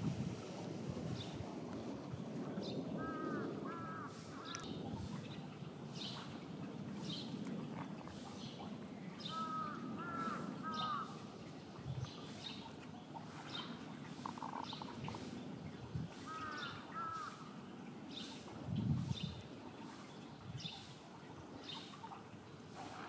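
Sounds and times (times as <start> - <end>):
crow cawing: 3.0 - 4.6, 9.3 - 11.1, 16.3 - 17.4.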